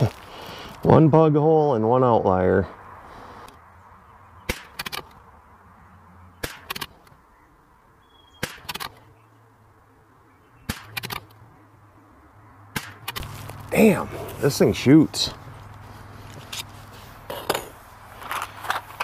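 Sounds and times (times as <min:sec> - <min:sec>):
rifle shots cracking: 0:10.7 - 0:11.3, 0:12.7 - 0:13.4.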